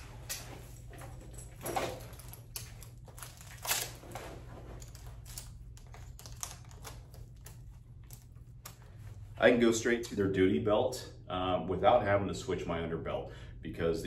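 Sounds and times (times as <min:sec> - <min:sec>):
buckle and pouch clicks and rattles: 0:00.2 - 0:08.9.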